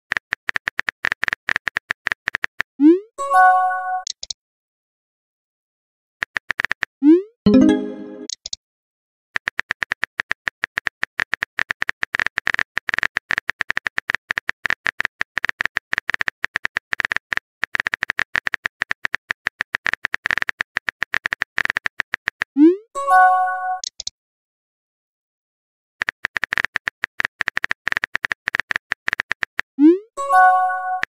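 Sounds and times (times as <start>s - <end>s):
bright multi-tone chime: 7.5s - 8.3s.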